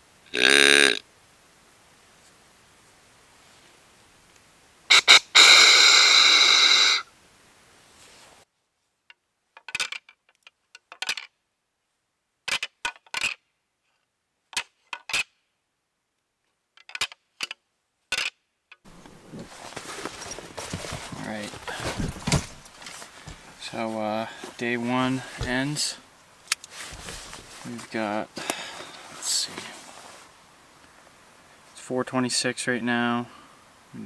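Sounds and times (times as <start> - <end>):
deer call long note: 0.3 - 1.0, 4.9 - 7.1
rattling antlers clacking: 18.9 - 30.0.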